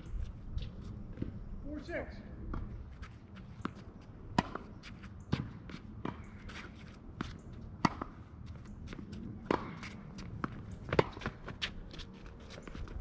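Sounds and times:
tennis ball bouncing: 2.5s - 11.8s
shoes scuffing on court: 2.5s - 13.0s
racket striking tennis ball: 3.6s - 4.6s, 7.8s - 8.2s, 9.4s - 11.4s.

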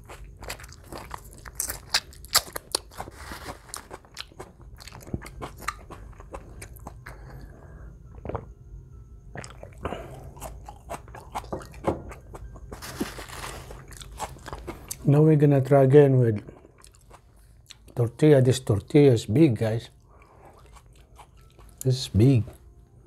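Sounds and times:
wet chewing and mouth clicks: 0.0s - 7.5s, 9.3s - 12.8s, 16.4s - 18.0s.

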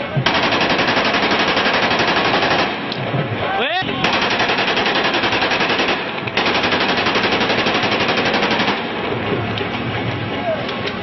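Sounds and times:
automatic rifle fire: 0.2s - 3.0s, 4.0s - 9.0s.

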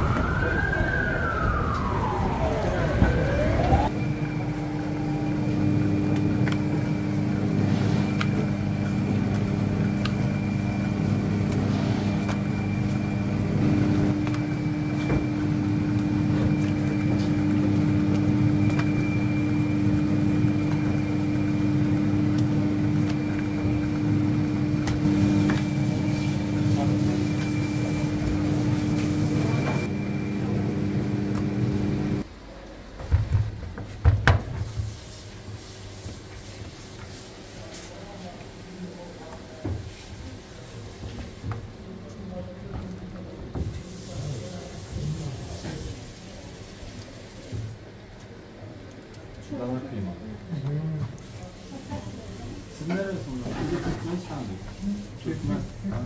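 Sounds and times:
dough sheeter motor hum: 0.0s - 33.9s, 49.4s - 56.0s.

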